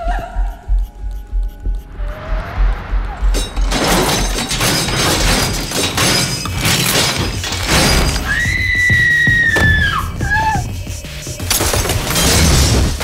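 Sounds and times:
crashes and smashing impacts: 0:03.3 - 0:08.3, 0:11.5 - 0:13.0.

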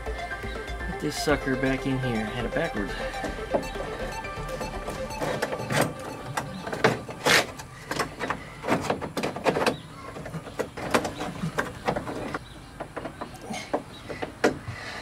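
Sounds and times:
metal door latch clicking and scraping: 0:04.9 - 0:13.3.

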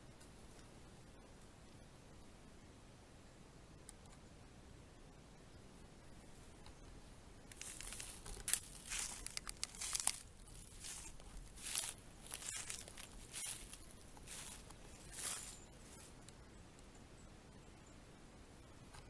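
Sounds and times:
footsteps through dry leaves: 0:07.5 - 0:16.2.

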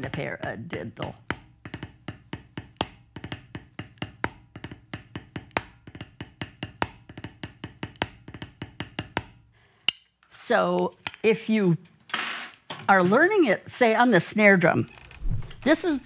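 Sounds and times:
drumsticks tapping practice pad: 0:00.0 - 0:10.1.

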